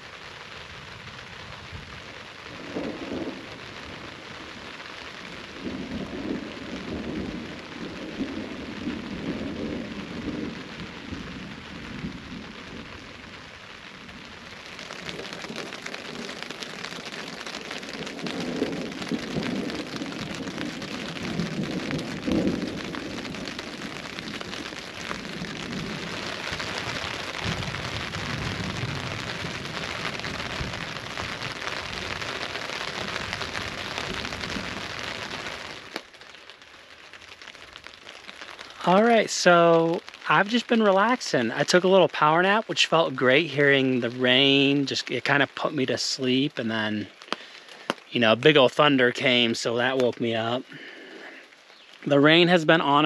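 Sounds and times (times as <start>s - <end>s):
steady rain falling: 0.0s - 53.0s
thunder rumbling: 0.6s - 36.0s.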